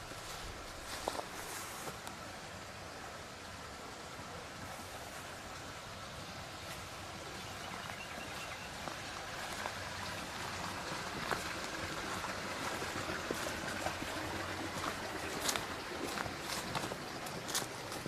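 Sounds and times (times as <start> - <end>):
water running: 8.3 - 18.0.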